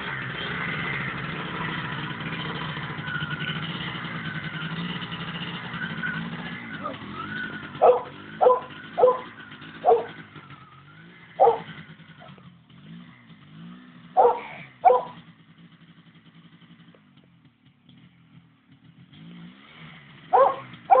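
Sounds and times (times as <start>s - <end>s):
two-stroke engine revving: 0.0s - 21.0s
dog barking: 7.8s - 10.2s, 11.4s - 12.4s, 14.2s - 15.2s, 20.3s - 21.0s.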